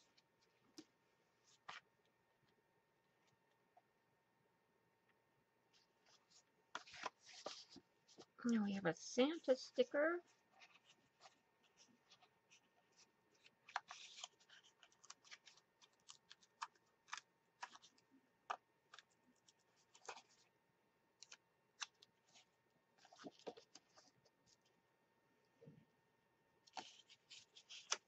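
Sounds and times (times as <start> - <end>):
paper envelope clicks and scratches: 6.0 - 8.3, 10.5 - 20.5, 21.2 - 24.2, 26.7 - 28.0.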